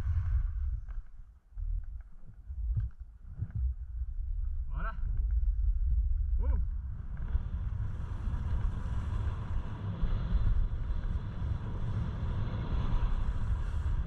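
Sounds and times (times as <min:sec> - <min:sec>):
wind buffeting microphone: 0:00.0 - 0:14.0
skis sliding over snow: 0:06.8 - 0:14.0.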